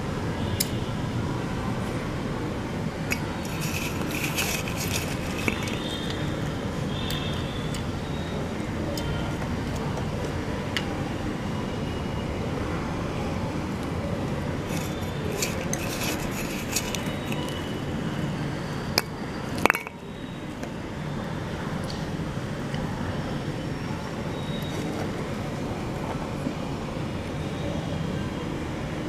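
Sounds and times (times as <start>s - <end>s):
clinks against steel bowl: 19.0s - 20.1s.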